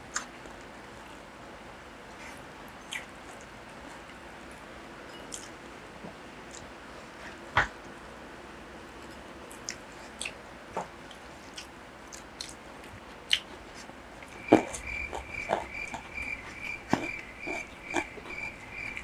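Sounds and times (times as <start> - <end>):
small mouth clicks and smacks: 9.5 - 13.5
chewing and biting food: 9.5 - 19.0
thin high pulsing chirping: 14.4 - 19.0.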